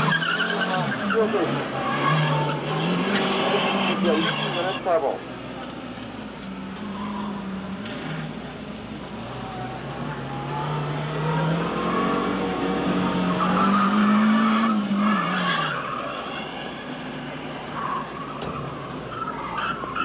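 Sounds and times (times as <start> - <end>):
car engine revving hard: 0.0 - 5.0, 9.2 - 17.6
tyres squealing: 0.0 - 5.2.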